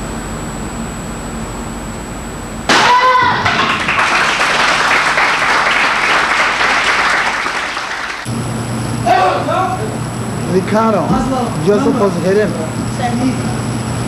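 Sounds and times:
person yelling: 2.7s - 3.6s
spectators clapping: 3.2s - 8.3s.

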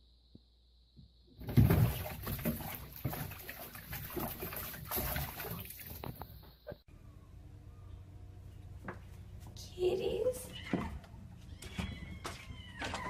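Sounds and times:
cat scrambling in bathtub: 1.4s - 6.3s
cat splashing in water: 1.4s - 6.3s.

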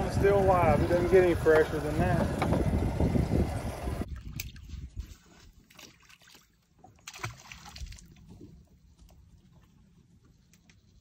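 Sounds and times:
light knocks on boat: 2.2s - 2.7s
water sloshing against hull: 4.0s - 11.0s.

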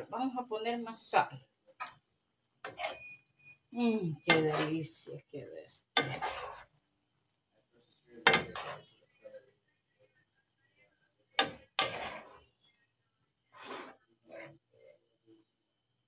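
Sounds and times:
spoon knocking and scraping pan: 2.6s - 3.1s, 4.2s - 4.8s, 6.0s - 6.7s, 8.3s - 8.9s, 11.4s - 12.5s.

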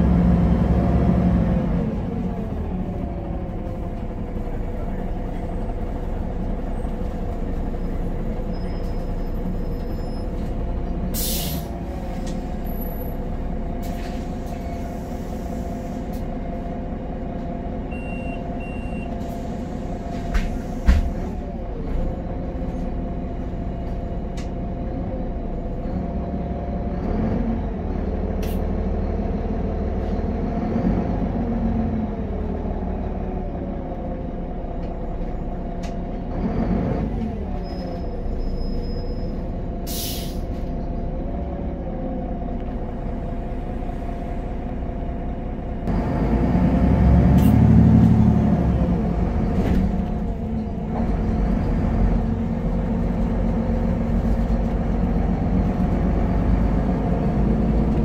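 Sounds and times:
bus diesel engine: 0.0s - 58.0s
brief beeps: 17.9s - 19.2s.

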